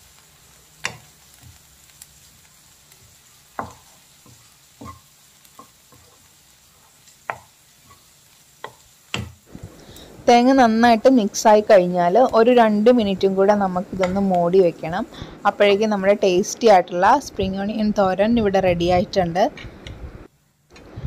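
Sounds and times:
wooden spatula scraping stir-fry: 0.8s - 9.8s.

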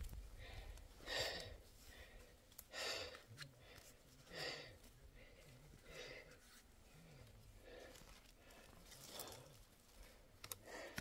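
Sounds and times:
man breathing hard: 0.3s - 11.0s.

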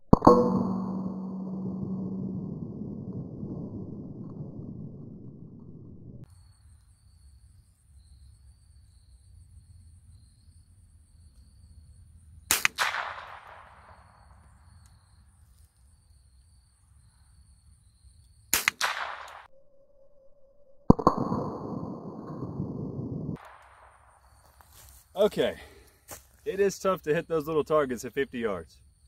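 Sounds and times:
rifle shots: 12.5s - 14.2s, 18.5s - 19.5s.

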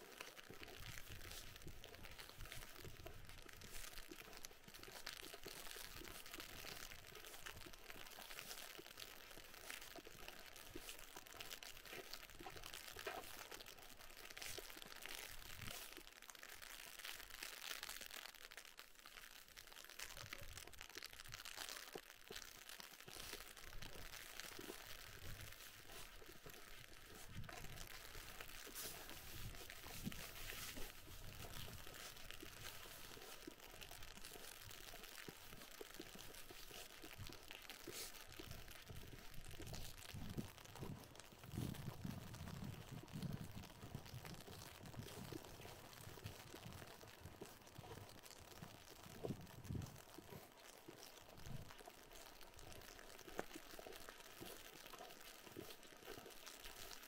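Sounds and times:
icy rain pattering on an umbrella: 0.0s - 57.0s
footsteps crunching in snow: 24.0s - 48.2s.

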